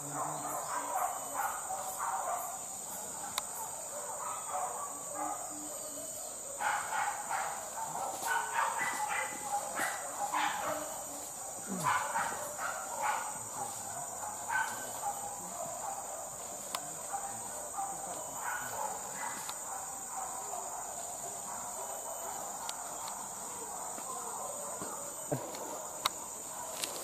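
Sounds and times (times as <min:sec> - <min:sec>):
forest insects droning: 0:00.0 - 0:27.0.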